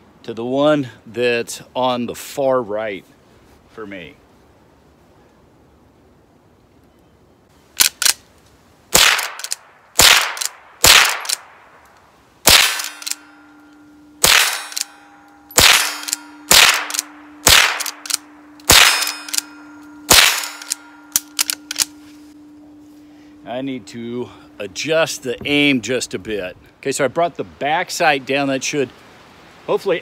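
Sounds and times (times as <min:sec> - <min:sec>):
rifle shots: 0:08.9 - 0:11.6, 0:12.4 - 0:13.3, 0:14.2 - 0:22.0.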